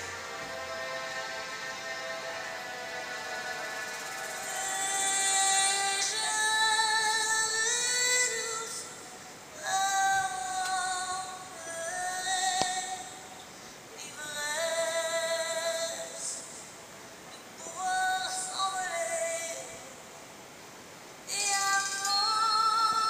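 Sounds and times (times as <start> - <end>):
musical accompaniment: 0.0 - 6.2
woman singing long held notes: 4.2 - 13.3, 14.0 - 16.6, 17.6 - 20.1, 21.3 - 23.0.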